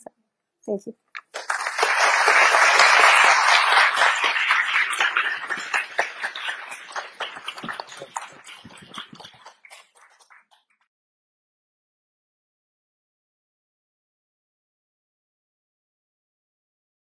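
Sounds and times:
audience applauding: 1.2 - 10.6.

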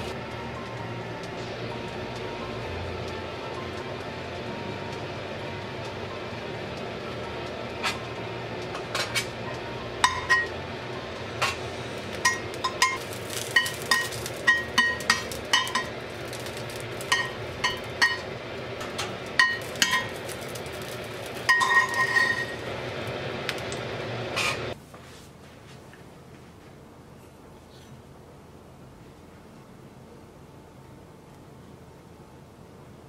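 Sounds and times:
tongs clinking against frying pan: 13.6 - 18.3, 19.4 - 20.1, 21.5 - 22.5.

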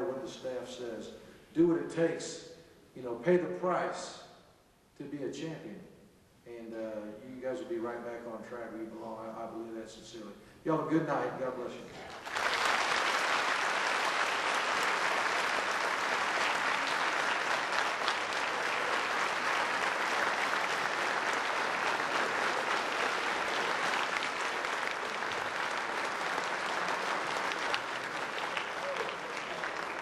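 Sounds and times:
audience applauding: 12.1 - 30.0.

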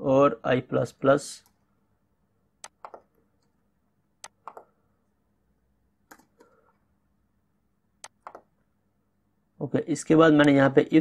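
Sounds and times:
faint keyboard keystrokes: 2.6 - 3.5, 4.2 - 4.8, 6.0 - 6.6, 8.0 - 8.5.

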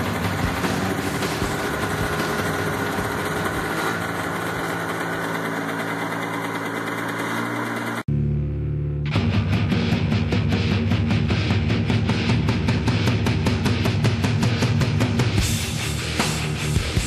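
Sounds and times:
snowmobile engine idling: 0.0 - 8.1.

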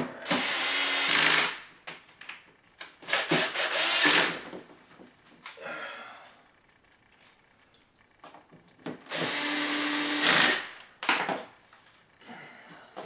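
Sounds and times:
cordless drill driving screws: 0.3 - 1.6, 3.1 - 4.4, 9.1 - 10.7.

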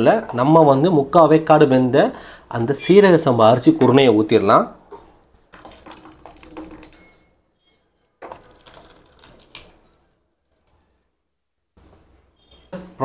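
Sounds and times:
porridge sliding from a pot: 8.2 - 10.8.

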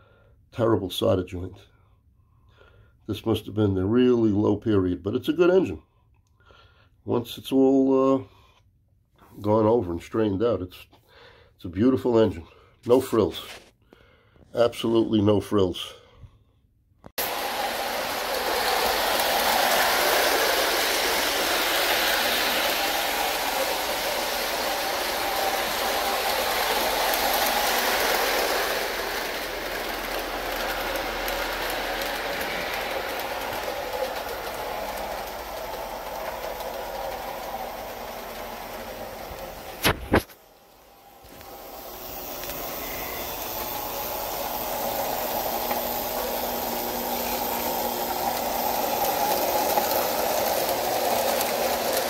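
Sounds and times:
metal wheels rumbling on rails: 17.2 - 39.9
model train motors whirring: 17.2 - 52.0.

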